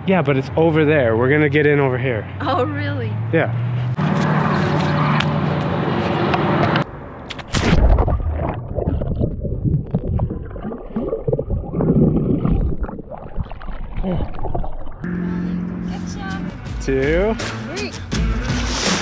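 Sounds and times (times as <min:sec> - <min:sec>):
steady drone: 0:15.0 - 0:19.0.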